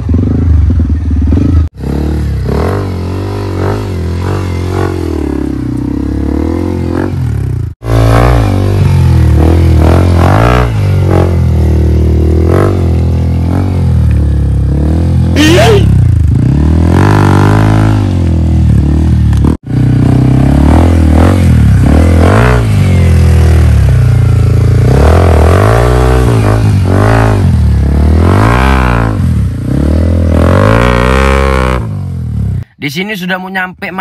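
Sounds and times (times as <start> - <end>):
dirt bike engine revving: 0.0 - 32.6.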